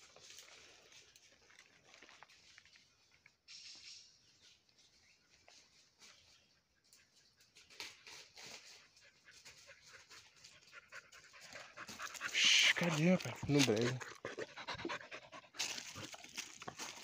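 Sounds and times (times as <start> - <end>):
dry leaves rustling and crackling: 15.6 - 17.0.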